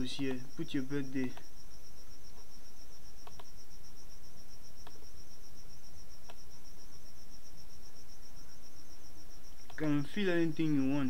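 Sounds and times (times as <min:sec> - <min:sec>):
background hiss: 0:00.0 - 0:11.0
insect chirping: 0:00.0 - 0:11.0
faint mouse clicks: 0:03.2 - 0:03.5.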